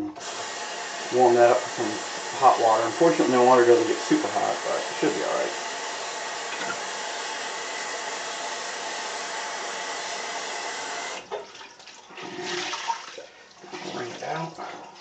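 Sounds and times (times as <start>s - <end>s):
water running from tap: 0.1s - 15.0s
water splashes and drips: 11.2s - 15.0s.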